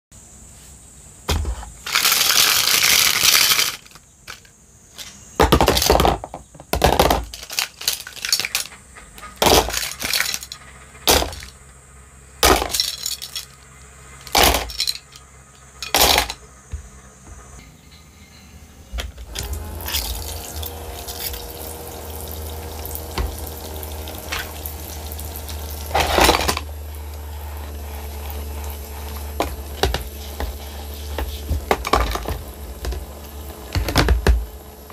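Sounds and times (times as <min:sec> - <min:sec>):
plastic toy dishes clattering: 0:01.8 - 0:11.6, 0:12.4 - 0:13.6, 0:14.2 - 0:15.2, 0:15.8 - 0:16.4, 0:25.9 - 0:26.7, 0:31.2 - 0:33.1
small pump motor humming: 0:07.8 - 0:34.9
running water hiss: 0:19.3 - 0:34.9.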